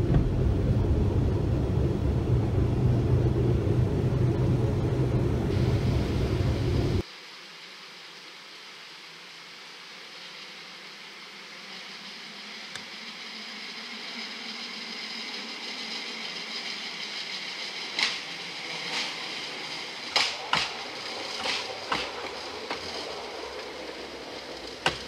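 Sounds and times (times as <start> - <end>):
rail vehicle rolling on track: 0.0 - 7.0, 12.0 - 25.0
wheels clacking over rails: 13.7 - 25.0.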